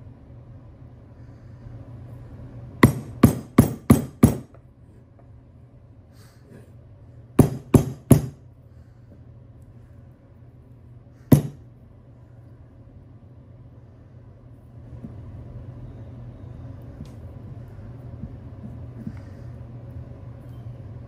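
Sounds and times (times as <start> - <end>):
hammer strikes on metal: 2.8 - 4.6, 7.4 - 8.4, 11.3 - 11.7.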